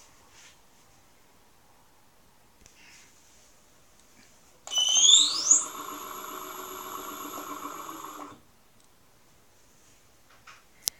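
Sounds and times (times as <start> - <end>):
electric motor whining: 4.7 - 8.4.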